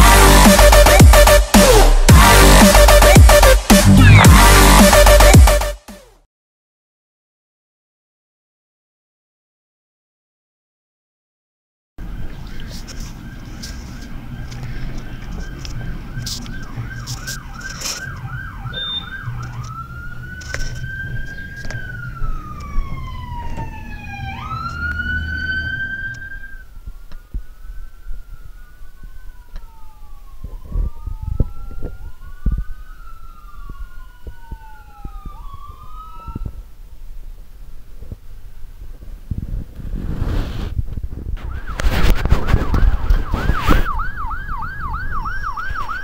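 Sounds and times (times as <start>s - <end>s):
electronic siren yelp and wail: 4.0s - 5.5s, 13.2s - 36.7s, 41.4s - 46.0s
engine rumble: 12.0s - 27.3s
faint siren wailing: 12.0s - 37.0s, 41.4s - 46.0s.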